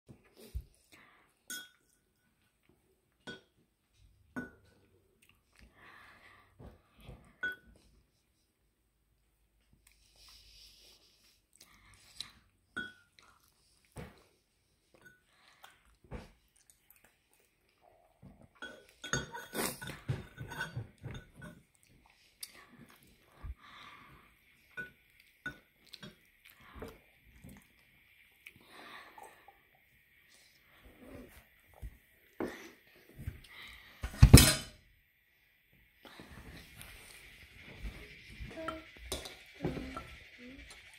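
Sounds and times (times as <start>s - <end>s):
spoon and chopsticks clinking bowl: 1.5s - 2.0s, 12.8s - 13.1s, 18.6s - 21.7s
child chewing: 4.6s - 6.4s, 9.6s - 33.7s.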